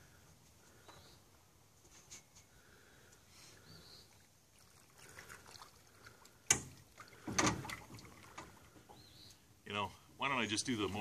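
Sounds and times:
water sloshing: 4.0 - 9.0.

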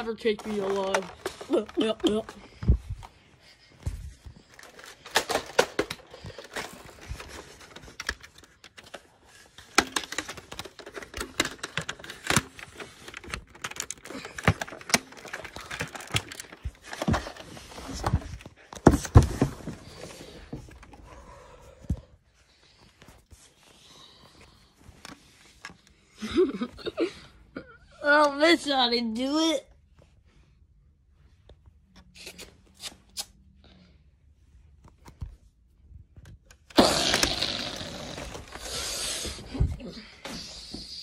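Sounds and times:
toys clicking and clattering: 0.0 - 2.6, 4.4 - 21.0, 36.4 - 39.4
plush toys rustling: 0.0 - 27.2.

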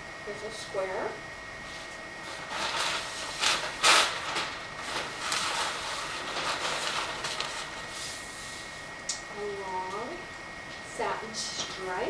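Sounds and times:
paper rustling and crinkling: 1.7 - 8.3.

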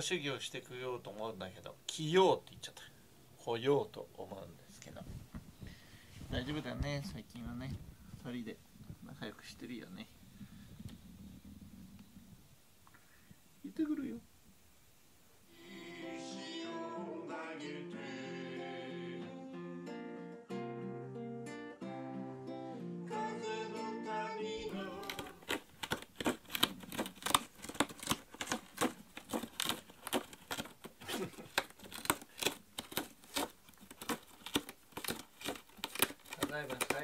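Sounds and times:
man singing: 15.5 - 19.6, 23.1 - 25.6
strummed acoustic guitar: 19.2 - 25.8
cat clawing cardboard scratcher: 24.7 - 37.0.

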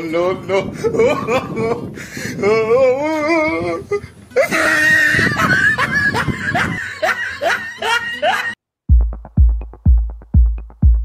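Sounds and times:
high-pitched laughter: 4.4 - 8.6.

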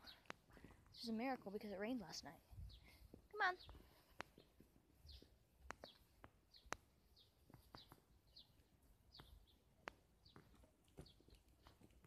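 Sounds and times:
bird chirping: 0.0 - 1.3, 2.1 - 11.8.

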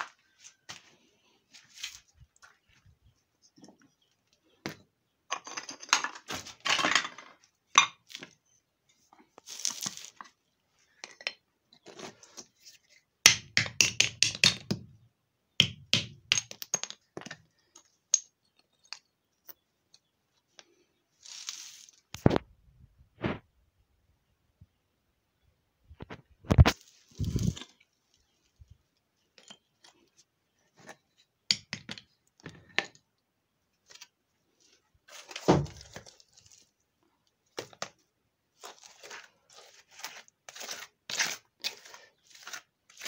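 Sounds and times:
hammer knocking stone: 13.3 - 14.8, 15.6 - 16.9.

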